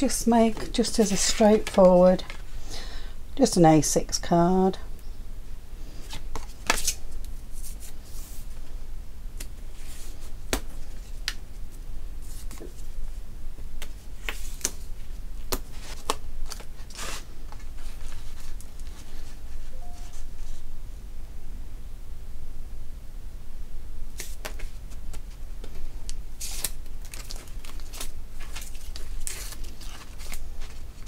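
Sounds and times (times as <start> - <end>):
card rustling and sliding: 0.3 - 2.5, 15.4 - 20.6.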